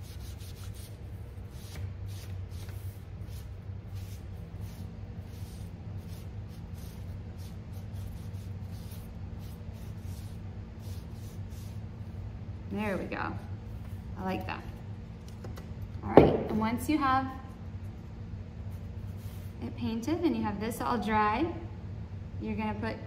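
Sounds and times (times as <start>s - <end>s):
paintbrush dabbing on wood: 0.0s - 11.8s
steady low hum: 0.0s - 23.0s.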